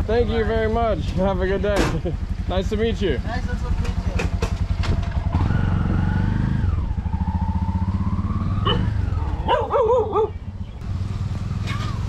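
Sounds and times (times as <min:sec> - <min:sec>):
small motorcycle engine revving: 0:03.5 - 0:12.0.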